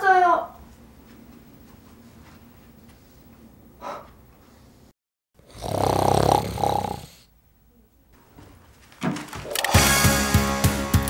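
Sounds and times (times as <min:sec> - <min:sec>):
man snoring: 0:05.4 - 0:07.3.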